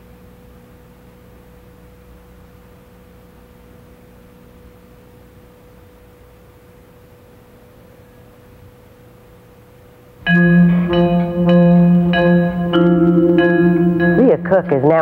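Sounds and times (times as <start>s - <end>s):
background hiss: 5.4s - 15.0s
low hum: 10.2s - 15.0s
faint pure tone: 10.3s - 15.0s.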